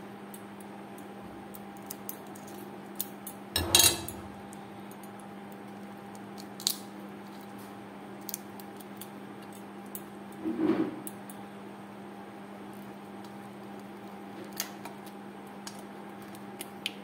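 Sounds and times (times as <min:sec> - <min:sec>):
steady low hum: 0:00.0 - 0:17.0
prawn shell clicking and crackling: 0:04.4 - 0:10.1, 0:12.6 - 0:17.0.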